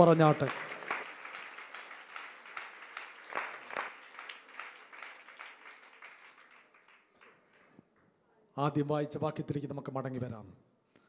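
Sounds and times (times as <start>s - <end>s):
congregation clapping: 0.0s - 7.9s.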